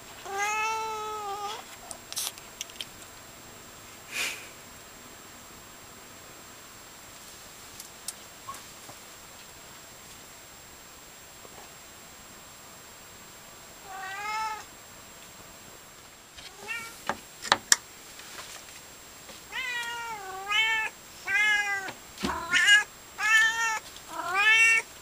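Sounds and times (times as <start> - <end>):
cat meowing: 0.2 - 1.6, 13.8 - 14.7, 16.5 - 17.0, 19.5 - 24.9.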